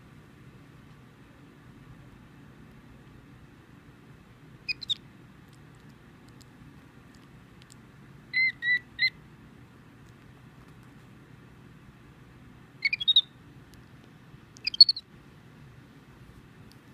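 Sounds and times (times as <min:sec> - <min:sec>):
monkey high-pitched peeps: 0:04.7 - 0:05.0, 0:08.3 - 0:09.2, 0:12.8 - 0:13.4, 0:14.6 - 0:15.1.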